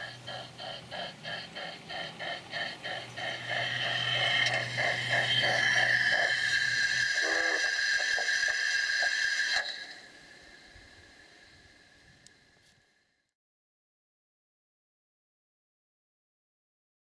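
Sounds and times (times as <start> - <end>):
model steam locomotive chuffing: 0.0 - 12.3
low hum: 0.0 - 12.6.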